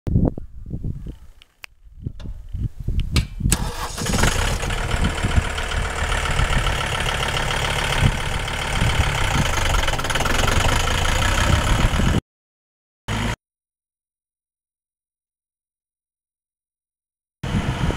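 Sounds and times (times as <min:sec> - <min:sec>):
tractor diesel engine passing: 0:03.6 - 0:12.2.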